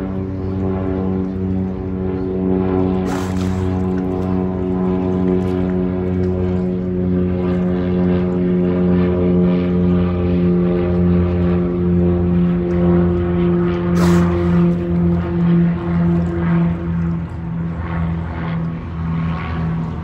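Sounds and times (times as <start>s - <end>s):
engine drone: 0.0s - 20.0s
short hiss: 14.0s - 14.3s.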